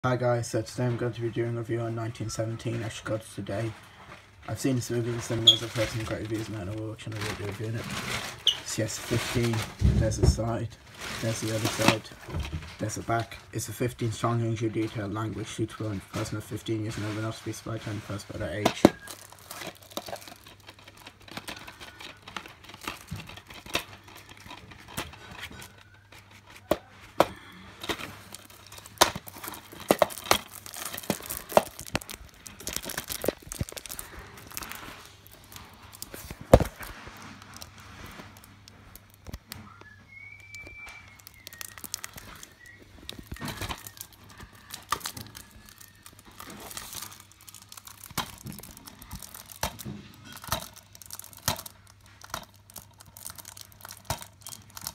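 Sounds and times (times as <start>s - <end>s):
plastic wrapping tearing and crinkling: 1.1s - 54.9s
clicks and knocks of plastic case: 18.5s - 34.7s.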